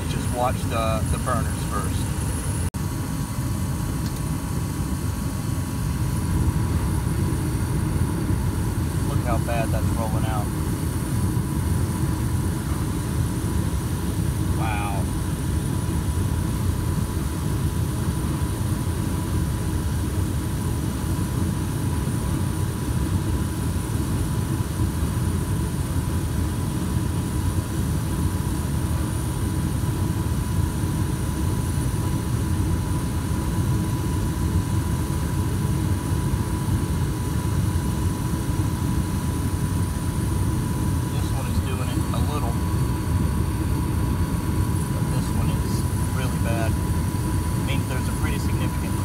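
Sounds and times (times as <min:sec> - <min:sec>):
furnace running: 0:00.0 - 0:20.7, 0:36.4 - 0:49.0
thin steady whine: 0:00.0 - 0:49.0.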